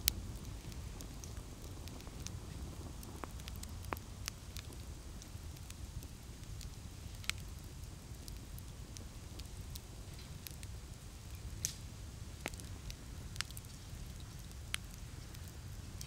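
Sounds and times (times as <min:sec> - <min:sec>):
campfire crackling: 0:00.0 - 0:16.0.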